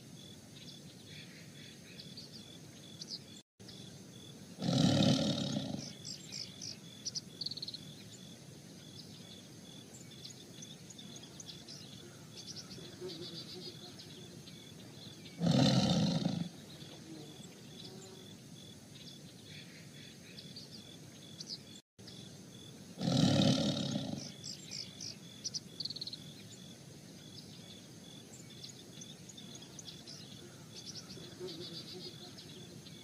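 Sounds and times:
birds chirping faintly: 0:00.0 - 0:33.0
tigers growling: 0:04.6 - 0:06.0, 0:15.3 - 0:16.6, 0:23.0 - 0:24.4.

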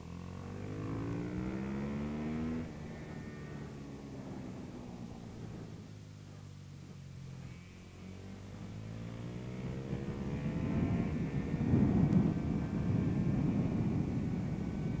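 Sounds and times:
motorcycle engine accelerating: 0:00.0 - 0:15.0
wind rushing over microphone: 0:09.6 - 0:15.0.

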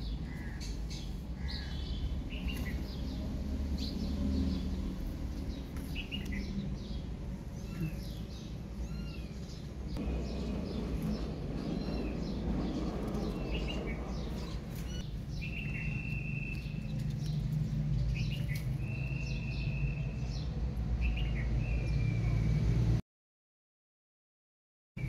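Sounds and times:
small birds chirping: 0:00.0 - 0:22.6
steady low rumble: 0:09.6 - 0:19.1.

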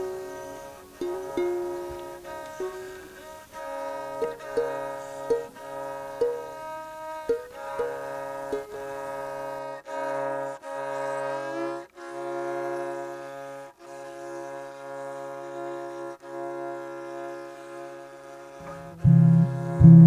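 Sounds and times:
held string notes: 0:00.0 - 0:20.0
low drone: 0:18.6 - 0:20.0.

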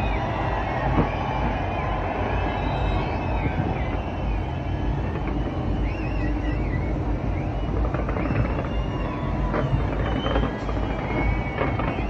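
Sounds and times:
distant fireworks rumble: 0:00.0 - 0:12.0
high wavering whistles: 0:00.0 - 0:12.0
fireworks cracks: 0:07.4 - 0:12.0.

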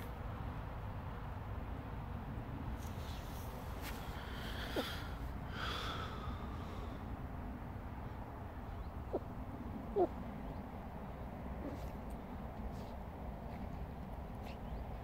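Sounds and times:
low outdoor rumble: 0:00.0 - 0:15.0
dog whines: 0:09.9 - 0:10.2.

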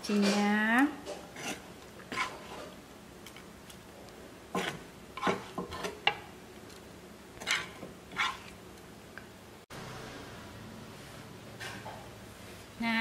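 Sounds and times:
spatula scraping frying pan: 0:01.0 - 0:02.8, 0:04.5 - 0:06.2, 0:07.4 - 0:08.6.

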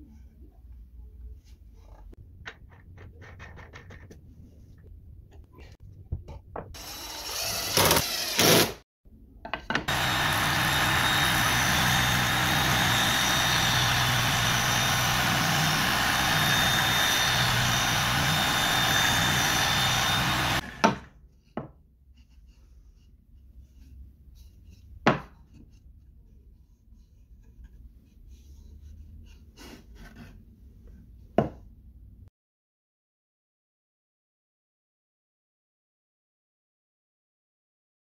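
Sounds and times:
sanding drum whine: 0:09.9 - 0:20.8.

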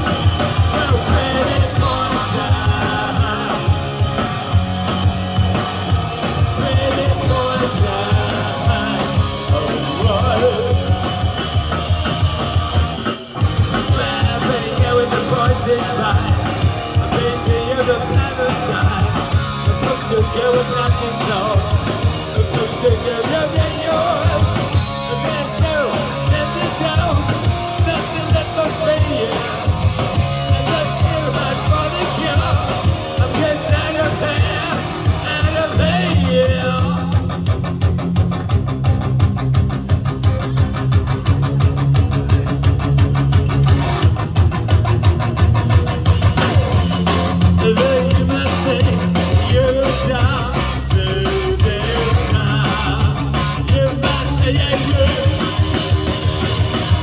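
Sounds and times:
bass guitar: 0:00.0 - 0:57.0
distorted electric guitar: 0:00.0 - 0:57.0
drum kit beat: 0:00.0 - 0:57.0
person singing: 0:00.4 - 0:04.2, 0:06.4 - 0:11.4, 0:13.8 - 0:29.7, 0:30.5 - 0:37.2, 0:47.5 - 0:56.1.

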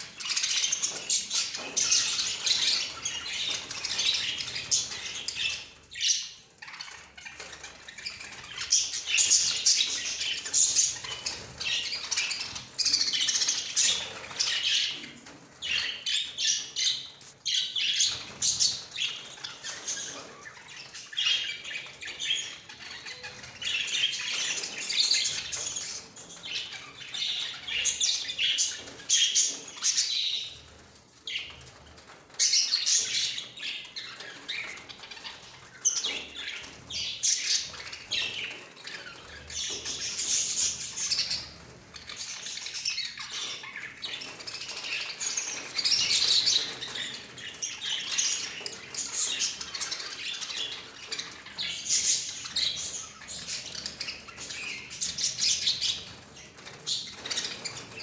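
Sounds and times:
wings fluttering: 0:06.6 - 0:58.0.

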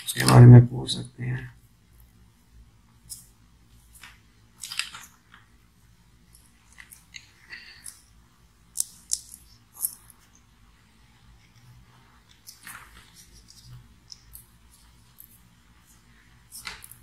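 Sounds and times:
wires rustling and crackling: 0:03.0 - 0:17.0.

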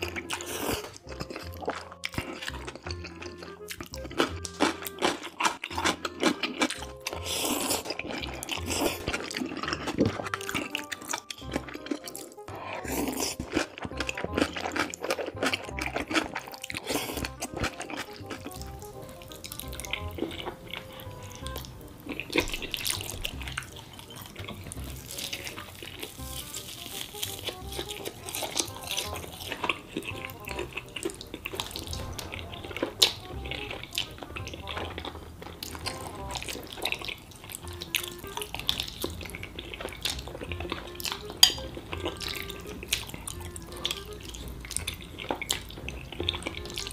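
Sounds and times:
slurping noodles: 0:00.0 - 0:03.7, 0:04.3 - 0:21.6
background music: 0:00.0 - 0:46.9
wet chewing: 0:00.0 - 0:46.9.

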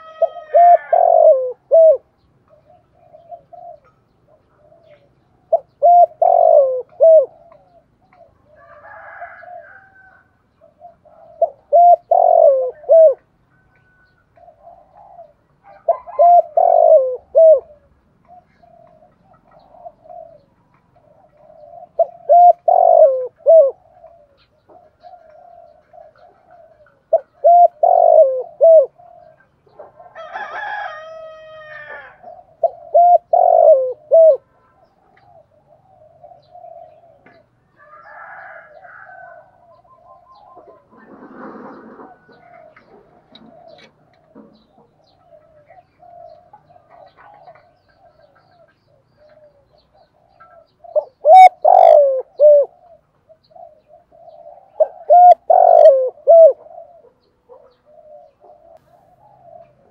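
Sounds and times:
rooster crowing: 0:00.0 - 0:01.6, 0:08.4 - 0:10.4, 0:13.5 - 0:14.4, 0:15.6 - 0:16.7, 0:30.0 - 0:32.4, 0:37.7 - 0:39.9
dove cooing: 0:00.0 - 0:59.9.

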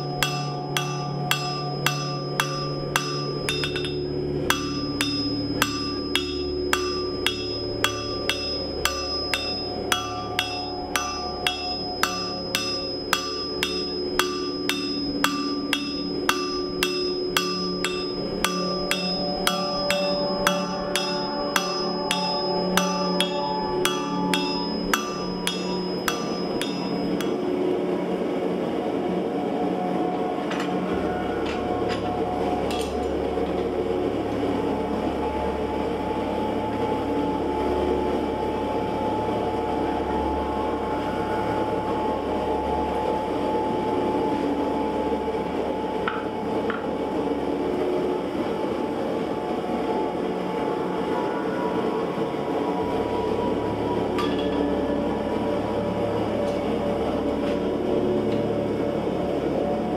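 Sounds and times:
hammer striking steel on anvil: 0:00.0 - 0:27.6, 0:31.4 - 0:33.2, 0:54.1 - 0:54.8.

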